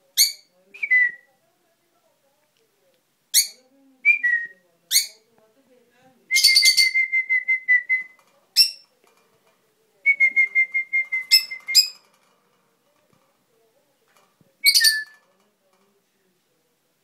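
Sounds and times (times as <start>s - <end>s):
lovebird chirping trills: 6.4s - 7.1s, 8.6s - 8.9s, 11.1s - 12.0s, 14.6s - 15.2s.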